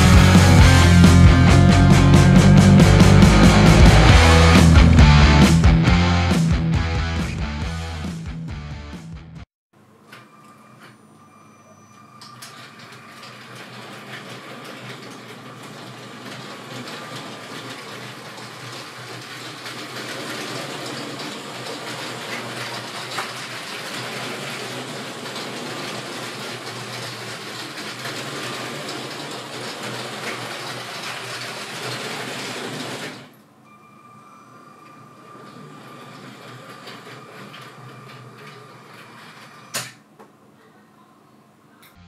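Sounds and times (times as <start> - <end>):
toy train motor humming: 12.2 - 33.3, 35.2 - 39.8
wheels rattling on plastic rails: 12.2 - 33.4, 34.9 - 40.0.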